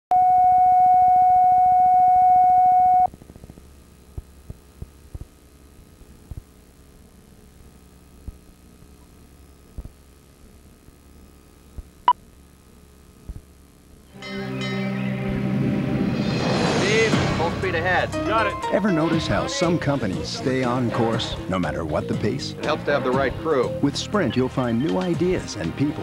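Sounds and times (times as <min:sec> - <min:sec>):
tape hum and hiss: 0:00.1 - 0:26.0
faint ticks: 0:04.1 - 0:05.4.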